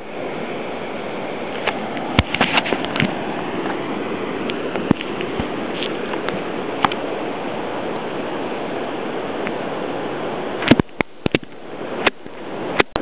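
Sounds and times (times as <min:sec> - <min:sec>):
ocean surf on a beach: 0:00.0 - 0:13.0.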